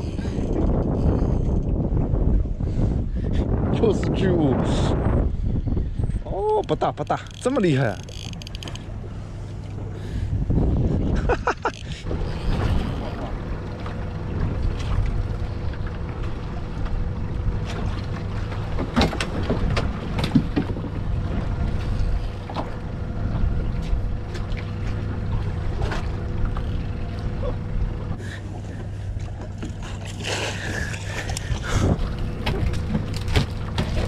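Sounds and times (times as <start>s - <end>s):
boat engine idling: 6.2s - 34.0s
clicks and knocks of reel: 7.0s - 8.9s
water splashing: 12.0s - 23.0s, 23.7s - 34.0s.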